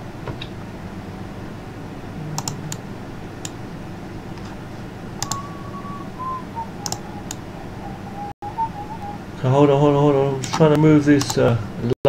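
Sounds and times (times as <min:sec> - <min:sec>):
steady low hum: 0:00.0 - 0:12.0
keyboard and mouse clicks: 0:02.4 - 0:02.7, 0:05.2 - 0:05.5, 0:06.8 - 0:07.4
short high tone: 0:05.2 - 0:09.2.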